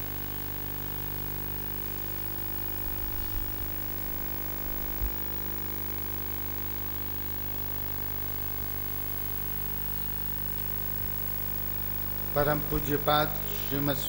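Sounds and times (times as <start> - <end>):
electrical hum and buzz: 0.0 - 14.0.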